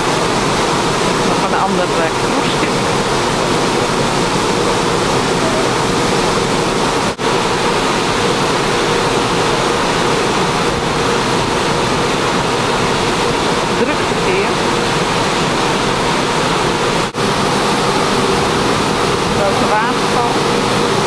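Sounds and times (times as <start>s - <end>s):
water rushing: 0.0s - 21.0s.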